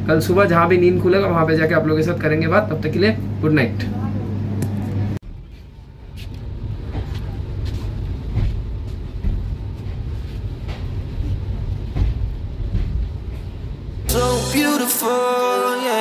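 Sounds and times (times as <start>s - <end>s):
train low rumble: 5.2s - 14.5s.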